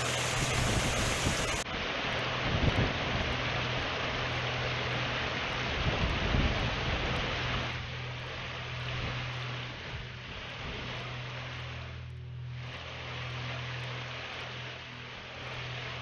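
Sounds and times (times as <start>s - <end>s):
wind buffeting microphone: 0.0s - 1.6s
steady rushing hiss: 0.0s - 2.3s
low steady hum: 0.0s - 16.0s.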